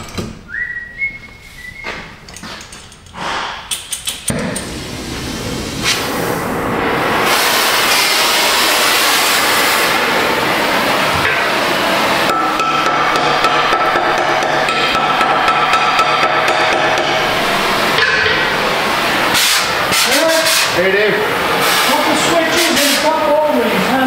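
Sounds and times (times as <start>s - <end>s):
steady whistle: 0.5s - 2.2s
cutting torch hissing: 4.6s - 13.2s, 16.4s - 24.0s.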